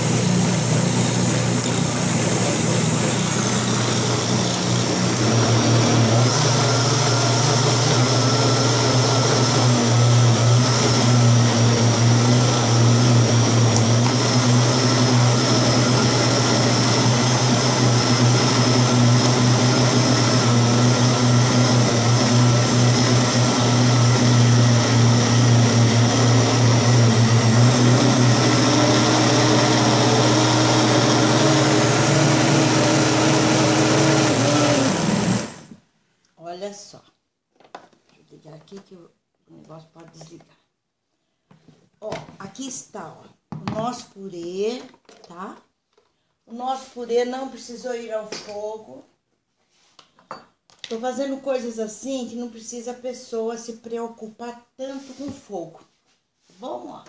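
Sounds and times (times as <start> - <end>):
blender running: 0.0 - 35.8.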